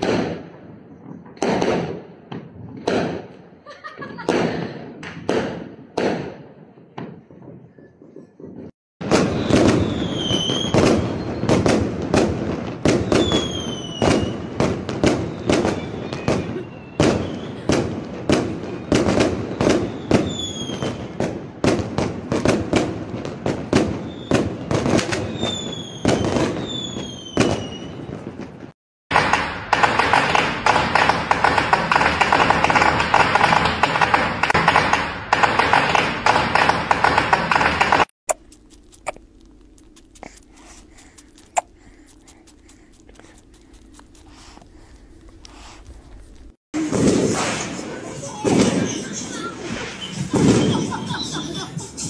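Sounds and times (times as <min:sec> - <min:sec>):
fireworks bangs and crackling: 0:00.0 - 0:38.1, 0:46.8 - 0:51.2
fireworks whistles: 0:09.0 - 0:21.3, 0:23.8 - 0:28.4, 0:49.7 - 0:51.0.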